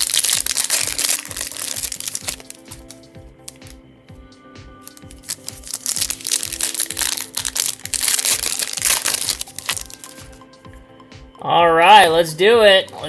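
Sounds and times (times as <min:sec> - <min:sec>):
foil wrapper tearing and crinkling: 0:00.0 - 0:03.8, 0:04.8 - 0:10.3
background music with steady beat: 0:00.0 - 0:13.0.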